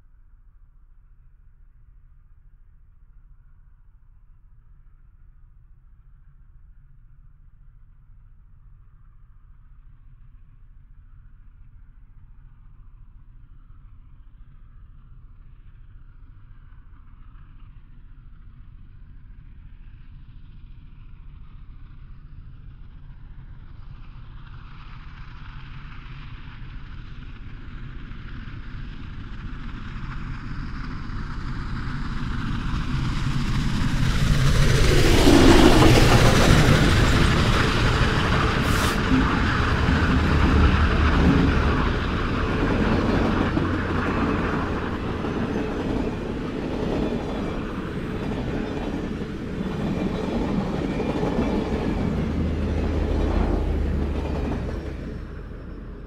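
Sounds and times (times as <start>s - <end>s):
steam locomotive passing: 29.3s - 56.0s
train wheels clattering on rails: 31.7s - 56.0s.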